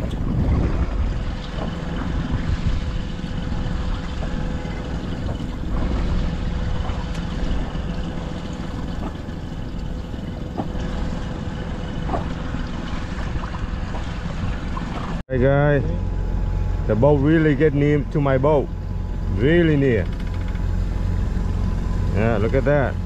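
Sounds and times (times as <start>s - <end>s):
wind on microphone: 0.0s - 9.3s
boat engine drone: 0.0s - 23.0s.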